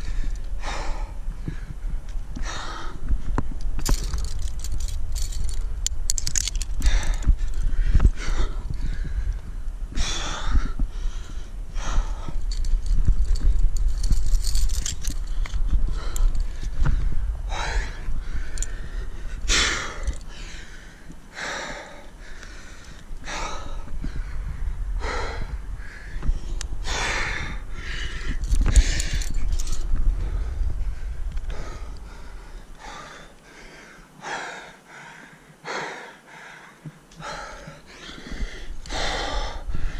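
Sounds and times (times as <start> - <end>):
man breathing hard: 0.0 - 5.6, 6.2 - 39.9
low rumble: 0.0 - 21.1, 23.0 - 32.9.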